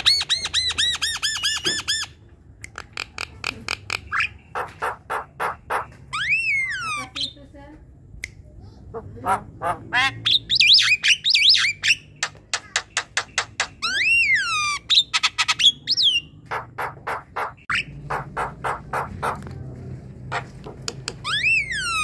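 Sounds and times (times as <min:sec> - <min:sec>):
bird singing varied song: 0:00.0 - 0:07.5, 0:10.0 - 0:19.4, 0:21.1 - 0:22.0.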